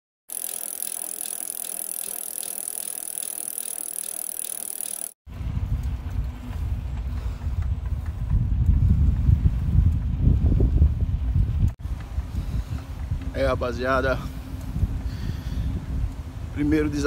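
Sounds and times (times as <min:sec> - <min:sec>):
small clicks: 0:00.3 - 0:05.2
bike ticking and rattling: 0:00.3 - 0:17.0
wind rumble on microphone: 0:05.3 - 0:17.0.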